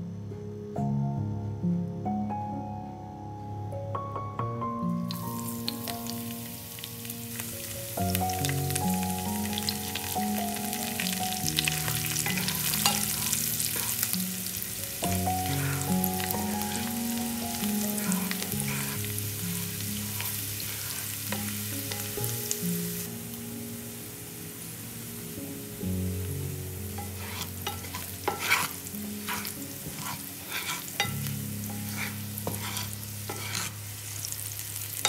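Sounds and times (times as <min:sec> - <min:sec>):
instrumental background music: 0:00.3 - 0:35.0
garlic sizzling in hot oil: 0:05.1 - 0:35.0
wooden spatula stirring: 0:12.2 - 0:14.1, 0:27.0 - 0:33.8.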